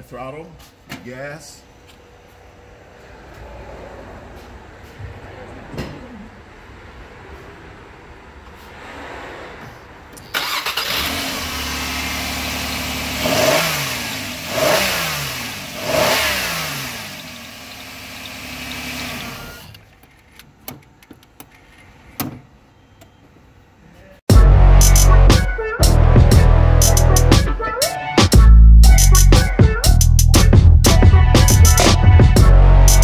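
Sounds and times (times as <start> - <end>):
car engine idling: 10.2 - 19.6
engine revving: 10.3 - 19.6.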